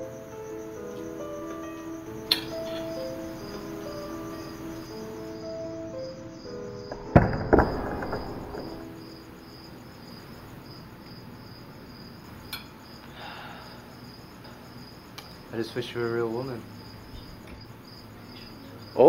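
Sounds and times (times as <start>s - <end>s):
background music: 0.0s - 10.1s
crickets chirping: 0.0s - 19.0s.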